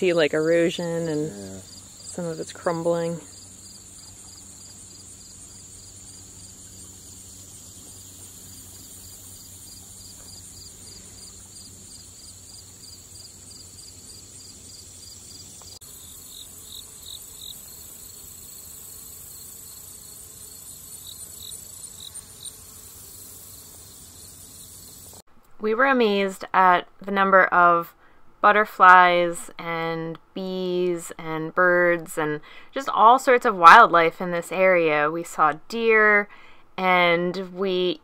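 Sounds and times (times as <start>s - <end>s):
insect high trill: 0.6s - 25.2s
insect rhythmic chirping: 0.7s - 25.2s.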